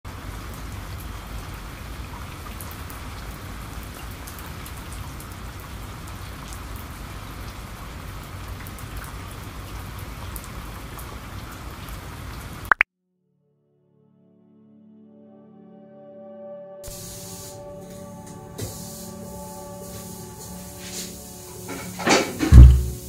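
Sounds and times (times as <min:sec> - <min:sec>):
rain falling on foliage: 0:00.1 - 0:12.8.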